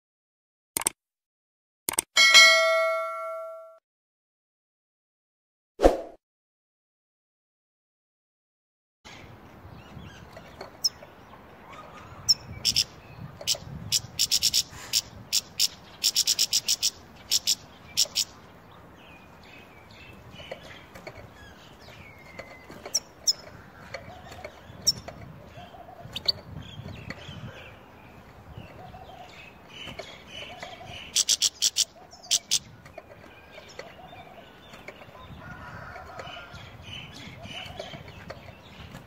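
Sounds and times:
sharp clicks: 0:00.8 - 0:01.0, 0:01.9 - 0:02.1
bird chirping: 0:09.1 - 0:35.4.

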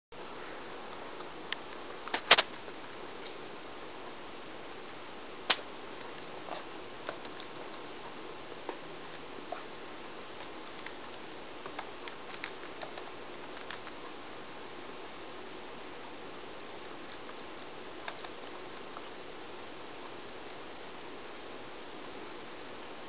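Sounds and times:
steady low hiss: 0:00.1 - 0:23.0
laptop keyboard typing: 0:10.6 - 0:14.0.

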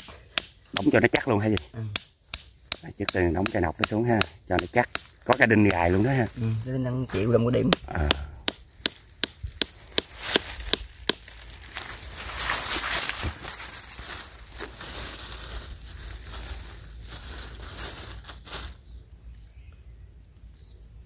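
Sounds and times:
stake pounded into ground: 0:07.7 - 0:11.9
rustling crunching noise: 0:08.6 - 0:19.5.

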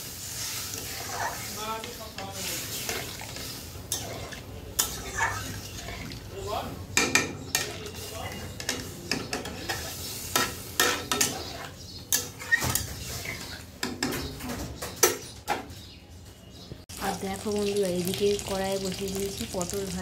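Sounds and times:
metal spatula scraping pan: 0:00.0 - 0:06.3, 0:07.0 - 0:14.3.

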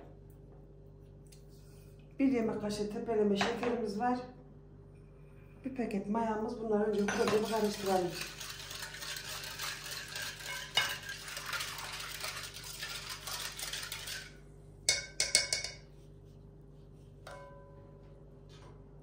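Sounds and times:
whisk swishing in glass bowl: 0:06.9 - 0:14.4
whisk clinking against bowl: 0:06.9 - 0:15.9.

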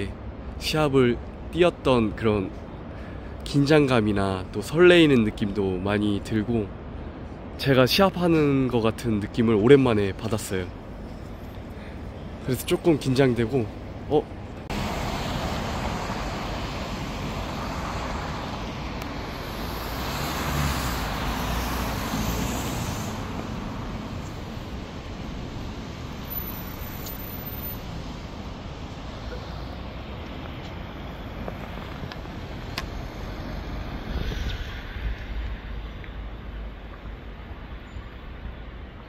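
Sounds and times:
cars driving past: 0:10.8 - 0:37.8.

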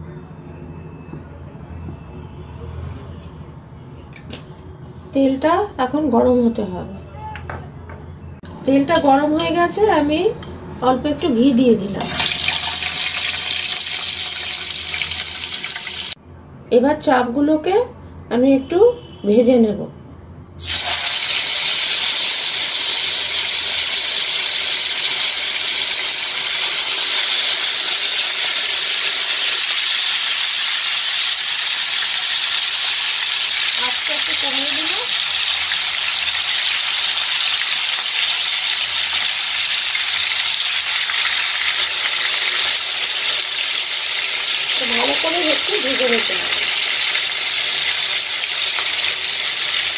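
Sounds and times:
chicken sizzling in hot oil: 0:12.0 - 0:16.2, 0:20.6 - 0:49.9.

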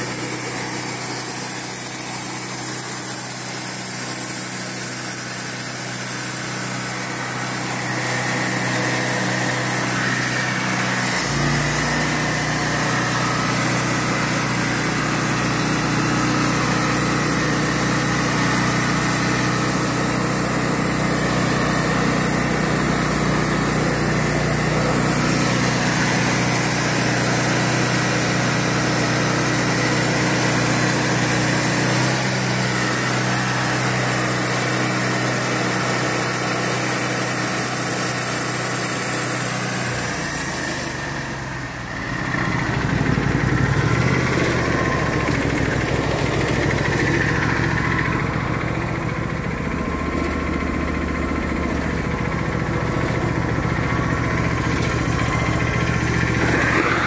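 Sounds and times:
band blade sawing wood: 0:00.0 - 0:41.2, 0:53.6 - 0:57.0
sawmill engine running: 0:00.0 - 0:57.0.

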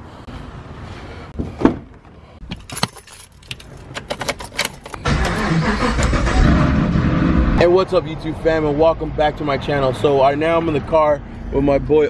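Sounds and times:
car keys jangling: 0:02.5 - 0:05.0
car engine starting and running: 0:02.5 - 0:11.0.

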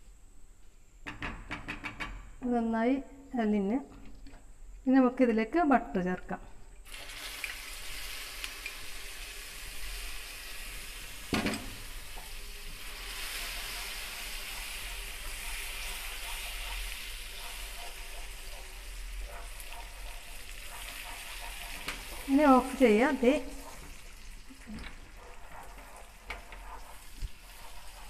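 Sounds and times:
butter sizzling in a pan: 0:06.9 - 0:28.0.

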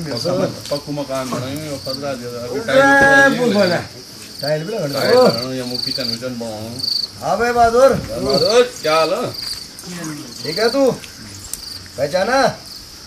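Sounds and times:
crickets chirping: 0:00.0 - 0:13.0
person speaking: 0:09.8 - 0:11.4.

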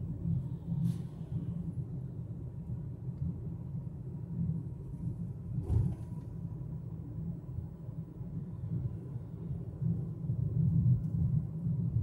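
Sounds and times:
car road and engine noise: 0:00.0 - 0:12.0
thump inside car: 0:05.6 - 0:06.4.

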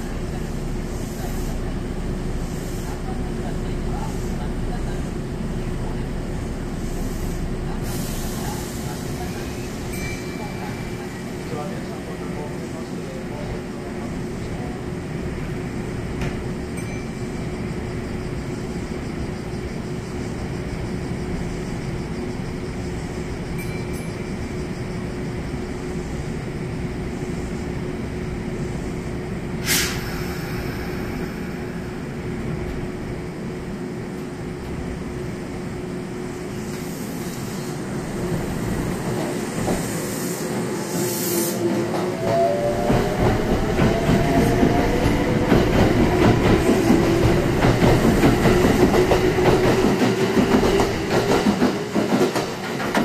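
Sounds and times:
train equipment humming: 0:00.0 - 0:53.0
sharp hiss: 0:06.7 - 0:09.9, 0:29.6 - 0:33.0, 0:36.4 - 0:41.8.

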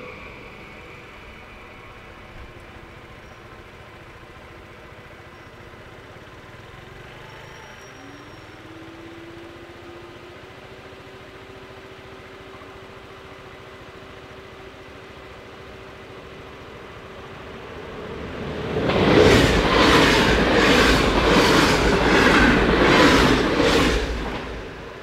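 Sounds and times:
vehicle engines idling: 0:00.0 - 0:18.7.

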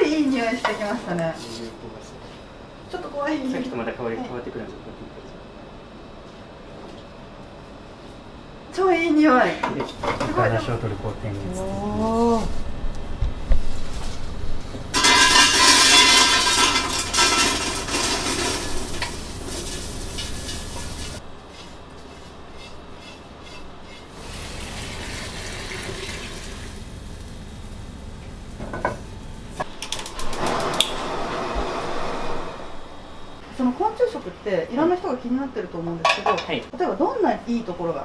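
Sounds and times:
spatula scraping metal pan: 0:15.0 - 0:24.2.

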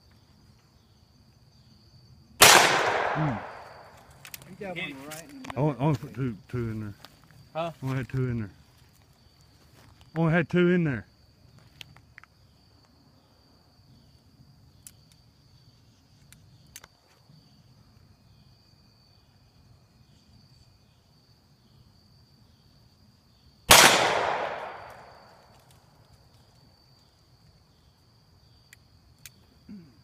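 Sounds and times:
insects chirring: 0:00.0 - 0:30.0
revolver gunshot: 0:02.4 - 0:03.9, 0:23.7 - 0:25.3.

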